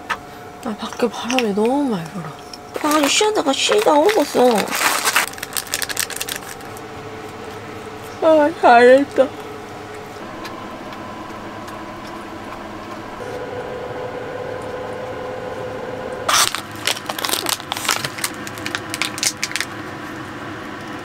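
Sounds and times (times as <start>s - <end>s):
steady hum: 0.0s - 21.0s
dog treat being crunched: 2.8s - 6.8s, 16.3s - 19.7s.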